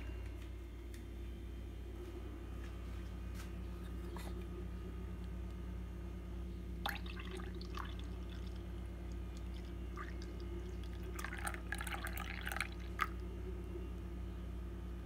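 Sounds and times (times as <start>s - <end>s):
low hum: 0.0s - 15.0s
coffee pouring into cup: 6.8s - 13.3s.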